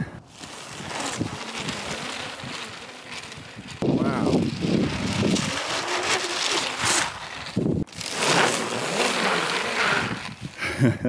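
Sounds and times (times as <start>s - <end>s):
wind on microphone: 0.0s - 8.2s
tracks churning through snow: 0.0s - 11.0s
electric motors whining: 0.4s - 10.6s.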